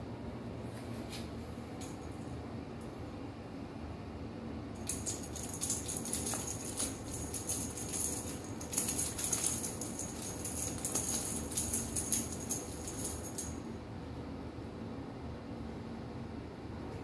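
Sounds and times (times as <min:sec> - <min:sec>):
cat toy rattling and jingling: 0:04.8 - 0:13.7.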